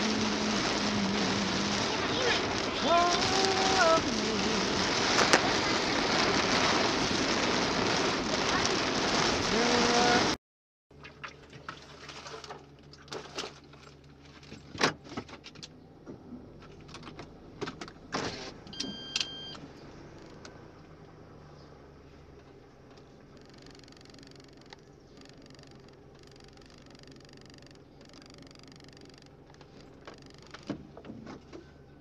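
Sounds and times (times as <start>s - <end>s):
low steady hum: 0.0s - 32.0s
short electronic beep: 18.7s - 19.6s.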